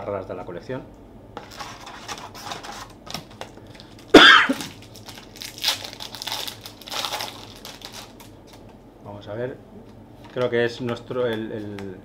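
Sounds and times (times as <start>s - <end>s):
wrapper rustling and crinkling: 2.6s - 8.7s
person coughing: 4.1s - 4.7s.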